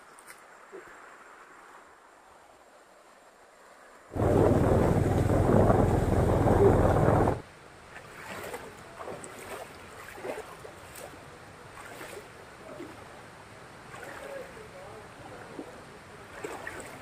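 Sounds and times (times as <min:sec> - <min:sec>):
stream trickling: 0:00.0 - 0:17.0
wind rumbling on microphone: 0:04.1 - 0:07.5.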